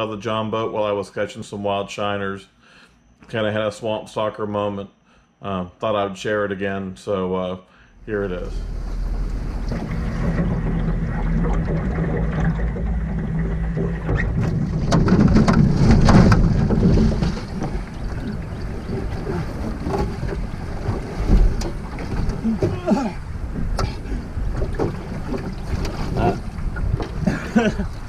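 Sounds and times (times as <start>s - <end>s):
water around boat: 8.0s - 28.0s
wind on microphone: 8.0s - 28.0s
knocks on boat: 9.3s - 27.7s.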